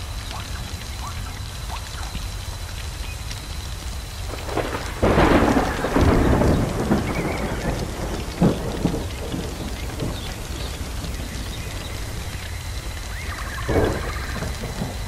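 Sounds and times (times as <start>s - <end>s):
steady hiss and crackle: 0.0s - 15.0s
thunder: 4.3s - 15.0s.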